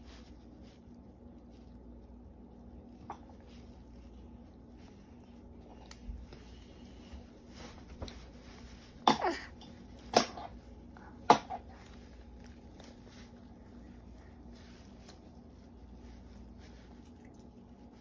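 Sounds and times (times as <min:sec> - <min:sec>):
baby coughing: 0:09.0 - 0:10.5, 0:11.2 - 0:11.7.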